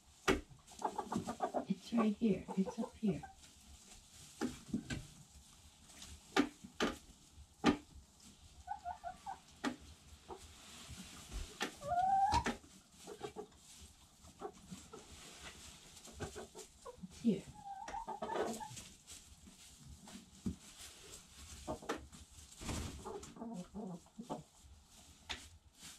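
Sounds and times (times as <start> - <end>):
hens clucking: 0.6 - 3.5, 8.5 - 10.6, 11.6 - 18.9, 21.5 - 22.1, 22.7 - 24.6.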